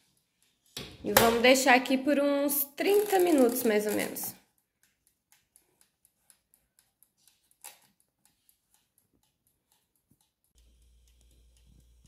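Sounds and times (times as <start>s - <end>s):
oven timer ticking: 8.0s - 12.0s.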